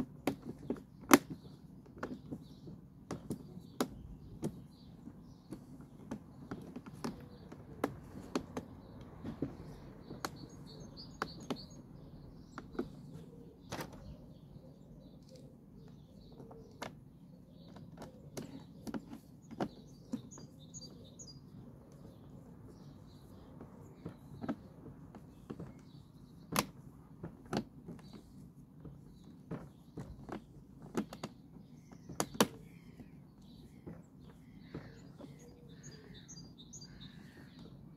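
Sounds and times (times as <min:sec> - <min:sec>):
birds chirping: 0:00.0 - 0:37.9.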